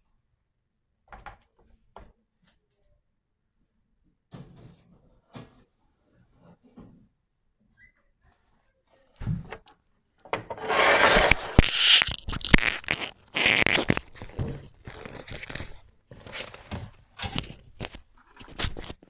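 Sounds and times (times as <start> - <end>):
rustling and scraping: 10.5 - 19.0.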